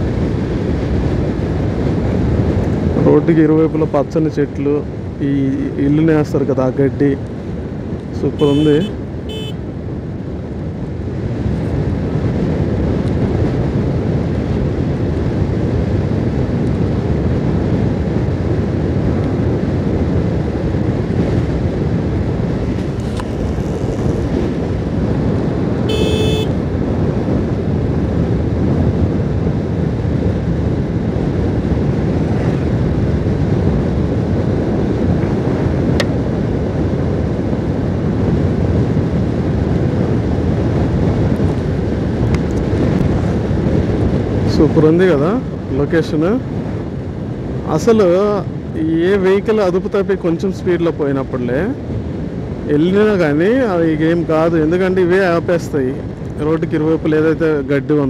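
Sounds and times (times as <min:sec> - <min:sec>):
wind rush on microphone: 0:00.0 - 0:58.0
motorcycle engine: 0:08.3 - 0:09.7, 0:22.2 - 0:26.8.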